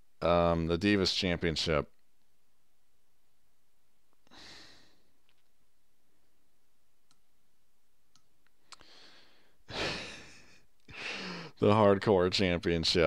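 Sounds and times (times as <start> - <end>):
soft breath: 4.3 - 5.2, 8.6 - 11.6.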